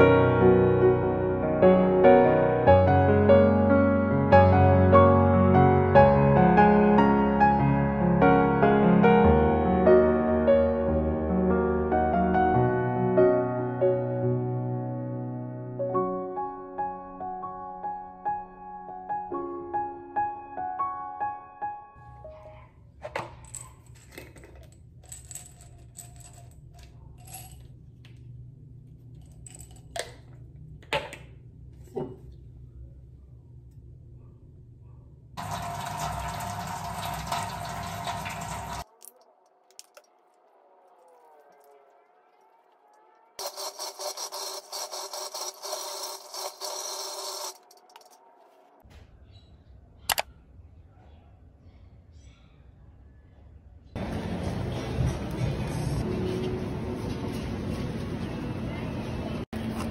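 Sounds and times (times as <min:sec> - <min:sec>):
capsules rattling in bottle: 0:23.2 - 0:27.7, 0:29.2 - 0:30.2, 0:43.4 - 0:48.2
sharp click: 0:50.1 - 0:50.3.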